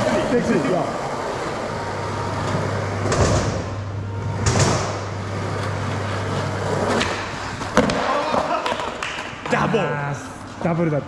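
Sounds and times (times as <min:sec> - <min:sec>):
skateboard wheels rolling on concrete: 0:04.4 - 0:09.6.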